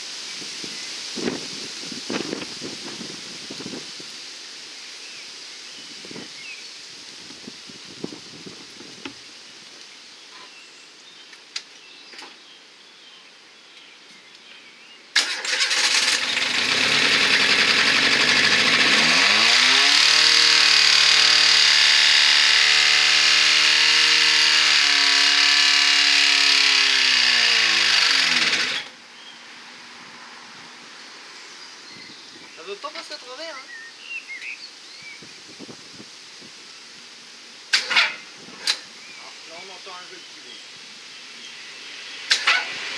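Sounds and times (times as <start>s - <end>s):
car engine revving: 15.2s - 28.9s, 42.1s - 42.9s.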